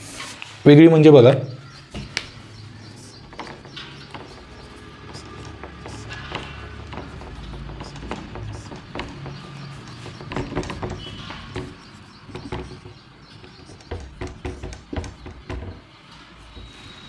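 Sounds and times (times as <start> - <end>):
marker writing on whiteboard: 2.0 - 15.9
thin marker squeak: 16.5 - 17.0.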